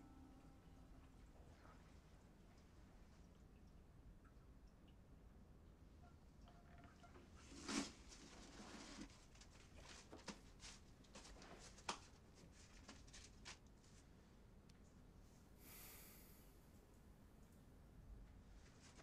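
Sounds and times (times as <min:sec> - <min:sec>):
soft hiss: 0:13.8 - 0:19.0.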